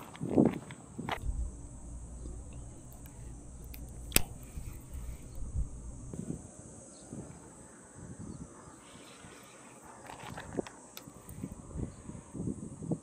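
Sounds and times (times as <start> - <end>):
insects chirring: 0.9 - 12.7
sharp click: 1.2 - 6.1.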